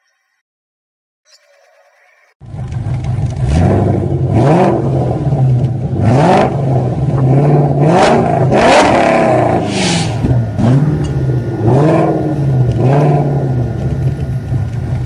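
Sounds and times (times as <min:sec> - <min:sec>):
engine revving over idle: 0:02.4 - 0:15.0
bursts of rushing noise: 0:08.7 - 0:13.2.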